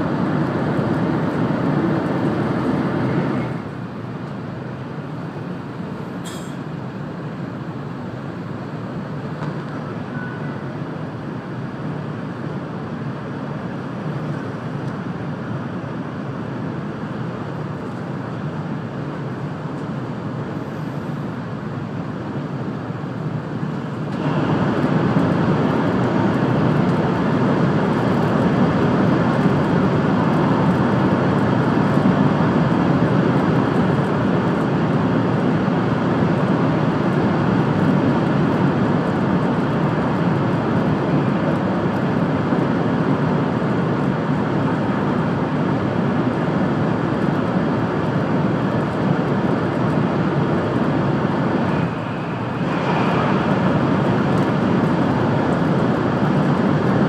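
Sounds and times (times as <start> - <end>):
train running rumble inside car: 0.0 - 57.0.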